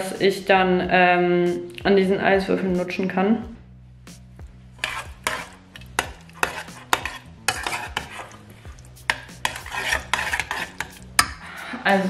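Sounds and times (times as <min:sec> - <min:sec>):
metal utensil scraping a pot: 0:04.7 - 0:11.4.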